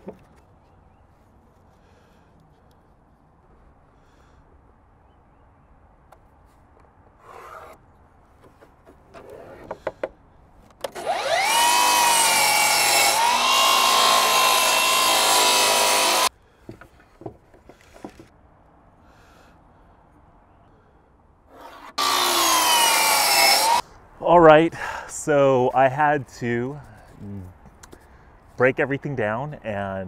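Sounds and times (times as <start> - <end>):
miter saw cutting wood: 10.9 - 16.3, 21.5 - 23.8.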